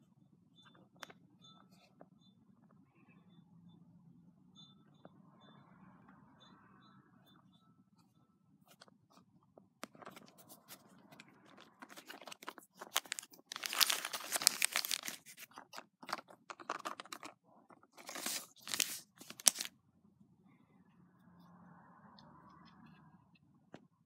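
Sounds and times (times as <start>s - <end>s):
packaging crinkling and tearing: 10.0s - 19.7s.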